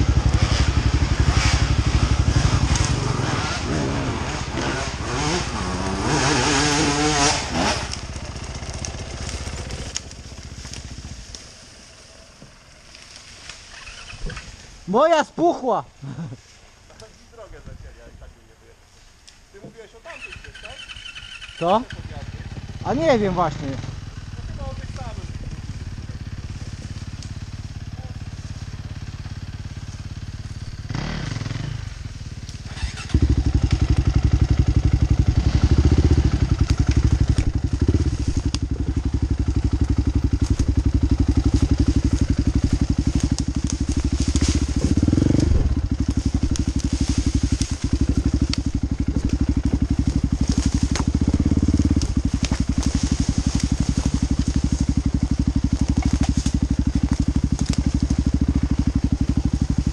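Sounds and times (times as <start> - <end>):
dirt bike engine revving: 0.0 - 15.2, 20.1 - 59.9.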